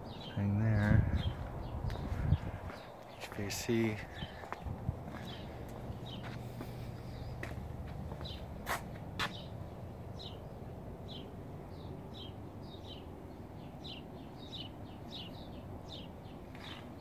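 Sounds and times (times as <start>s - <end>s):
footsteps: 0.9s - 9.4s.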